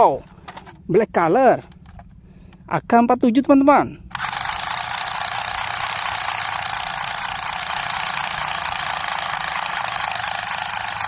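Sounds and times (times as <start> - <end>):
toy gun machine-gun rattle: 4.1 - 11.0.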